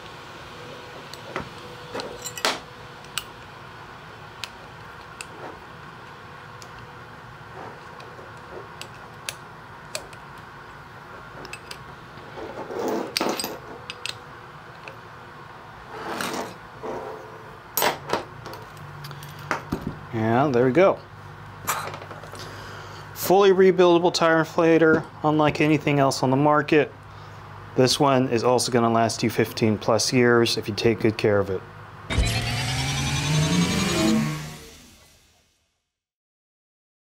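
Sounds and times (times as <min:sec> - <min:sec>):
tools scraping and clattering: 0:11.3 - 0:14.2, 0:15.9 - 0:19.6.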